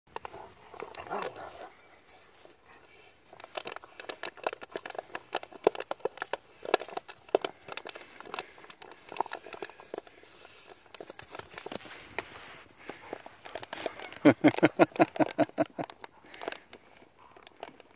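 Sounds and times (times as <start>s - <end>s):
dog growling: 0.3s - 1.8s
plastic bottle crackling and snapping: 3.2s - 17.9s.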